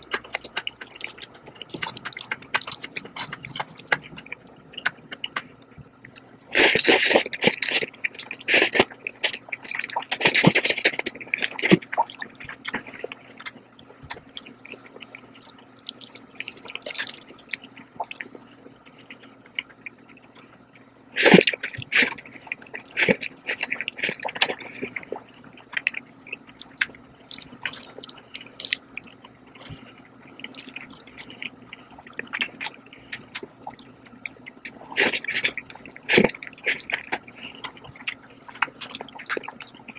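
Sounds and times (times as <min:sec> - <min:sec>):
wet chewing and lip smacks: 0:00.0 - 0:39.9
slurping noodles: 0:06.5 - 0:11.8, 0:21.2 - 0:22.2, 0:34.7 - 0:37.7.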